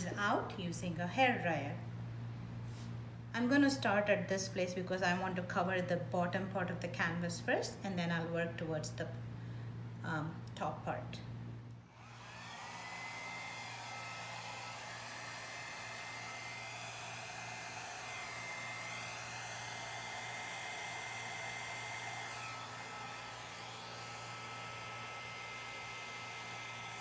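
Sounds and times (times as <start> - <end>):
hair dryer whining and blowing: 11.9 - 27.0.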